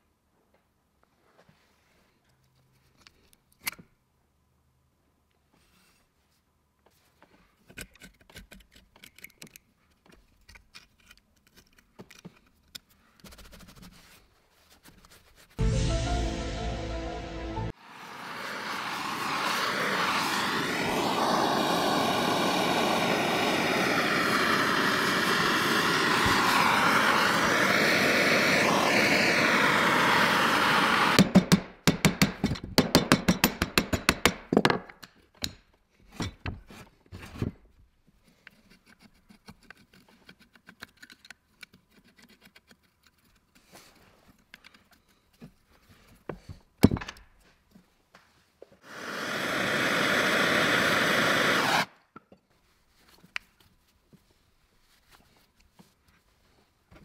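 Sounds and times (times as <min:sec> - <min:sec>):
small clicks and scrapes: 0:01.4 - 0:03.9, 0:06.8 - 0:15.6, 0:36.2 - 0:46.6
gas torch flame hissing: 0:17.7 - 0:31.3, 0:48.8 - 0:51.9.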